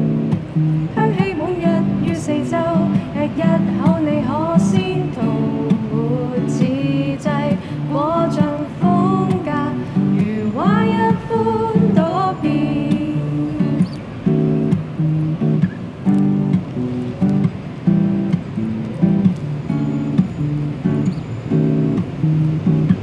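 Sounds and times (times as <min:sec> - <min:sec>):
acoustic guitars playing: 0:00.0 - 0:23.0
woman singing: 0:00.9 - 0:14.1.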